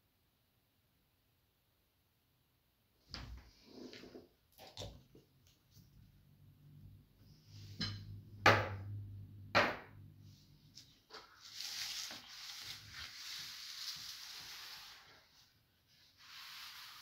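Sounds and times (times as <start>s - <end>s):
paper sliding across wooden board: 10.8s - 17.0s.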